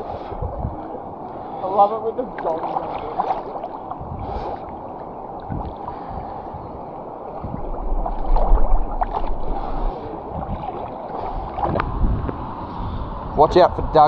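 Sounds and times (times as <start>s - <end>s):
low rumble on microphone: 0.0s - 1.3s, 2.7s - 14.0s
river water flowing: 0.0s - 13.3s
small splashes: 2.1s - 6.2s, 7.3s - 12.0s.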